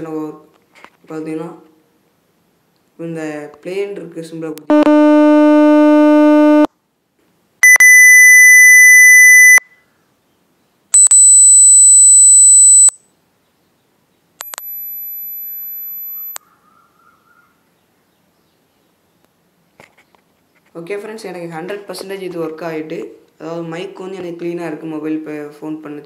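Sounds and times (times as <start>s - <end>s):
electronic test beeps: 4.7s - 6.7s, 7.6s - 9.6s, 11.0s - 13.0s, 14.4s - 16.4s.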